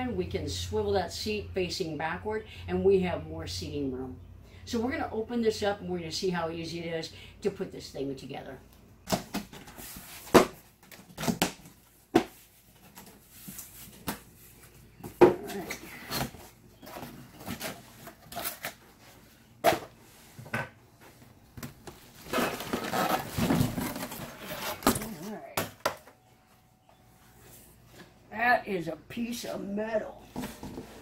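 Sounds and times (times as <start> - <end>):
cardboard packaging rustling and scraping: 9.4 - 25.5, 30.3 - 31.0.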